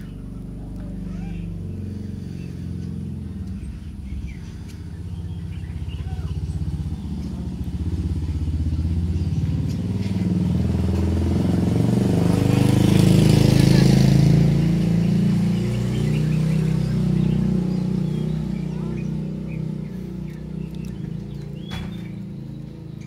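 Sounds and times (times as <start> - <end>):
engine humming: 0.0 - 23.0.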